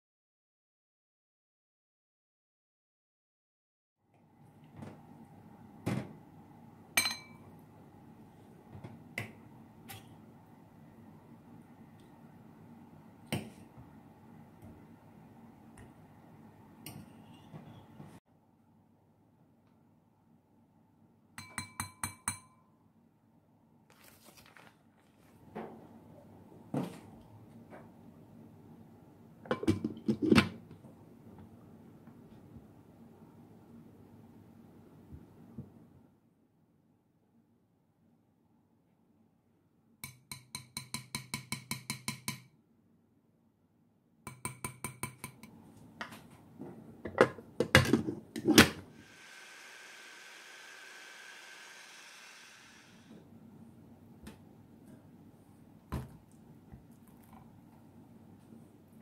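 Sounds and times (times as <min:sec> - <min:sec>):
sharp glass clink: 0:07.0 - 0:07.4.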